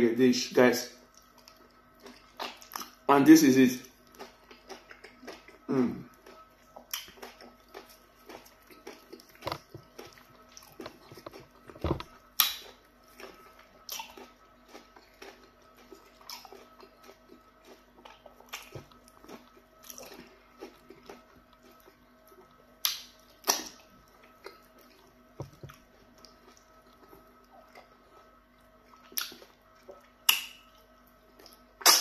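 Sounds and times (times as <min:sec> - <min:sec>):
wet chewing and mouth smacks: 0:01.0 - 0:03.1, 0:04.0 - 0:32.0.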